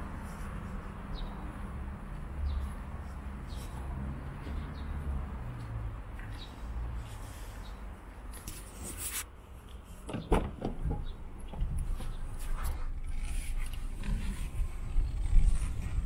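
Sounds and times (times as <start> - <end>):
car door clicks and knocks: 10.1 - 11.7
low rumble: 11.4 - 16.0.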